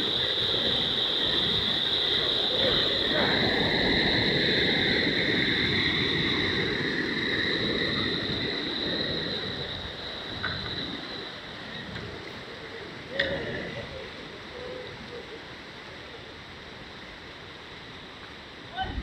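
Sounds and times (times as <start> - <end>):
floodwater rushing: 0.0 - 14.5
high-pitched whine: 0.0 - 19.0.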